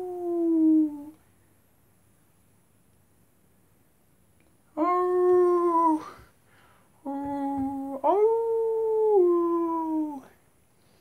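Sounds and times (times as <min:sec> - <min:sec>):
long howls: 0:00.0 - 0:01.2, 0:07.1 - 0:10.4.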